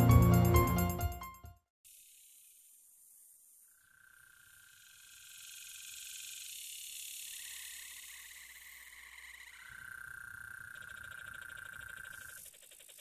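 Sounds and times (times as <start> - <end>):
high-pitched insect whine: 1.9 - 13.0
rapid pulsing chirr: 3.8 - 13.0.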